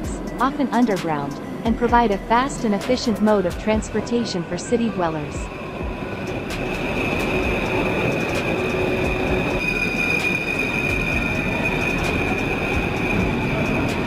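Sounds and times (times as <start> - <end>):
subway train rumbling: 0.0 - 14.0
high-pitched wheel squeal: 6.3 - 14.0.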